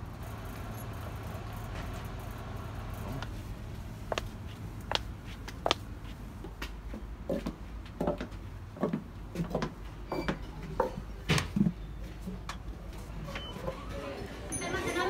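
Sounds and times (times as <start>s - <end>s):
footsteps: 3.2s - 12.2s.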